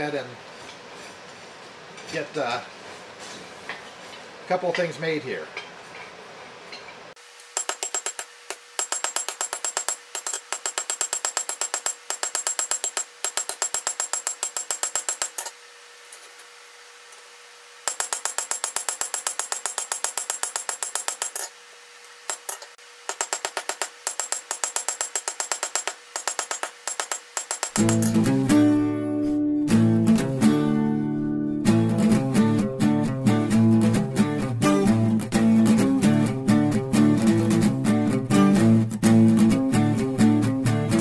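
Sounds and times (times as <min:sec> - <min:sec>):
hammer striking steel on anvil: 0:22.3 - 0:28.3.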